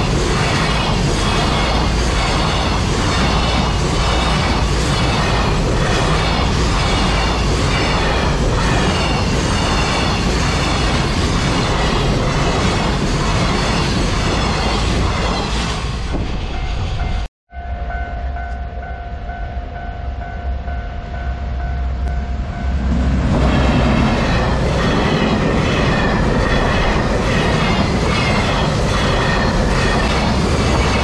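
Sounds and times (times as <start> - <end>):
electric locomotive passing: 0.0 - 31.0
level-crossing warning bell: 16.5 - 23.1
freight train wheels clattering: 22.7 - 31.0.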